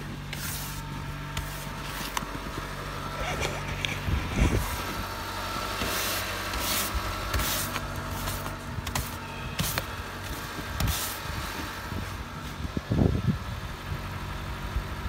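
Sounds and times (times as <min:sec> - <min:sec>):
brush sweeping snow off car: 0:00.0 - 0:12.7
steady low hum: 0:00.0 - 0:15.0
low rumble: 0:00.9 - 0:05.7.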